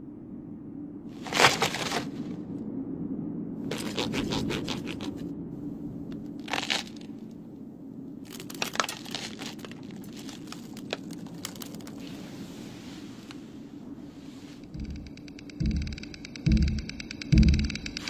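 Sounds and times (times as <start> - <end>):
steady low hum: 0.0 - 18.0
sharp crackling clicks: 8.3 - 12.0, 14.6 - 18.0.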